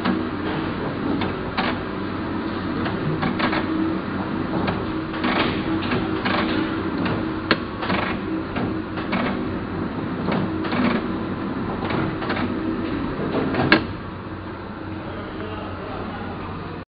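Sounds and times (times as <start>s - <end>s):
printing press running: 0.0s - 16.8s
rhythmic machine clacking: 2.8s - 13.9s.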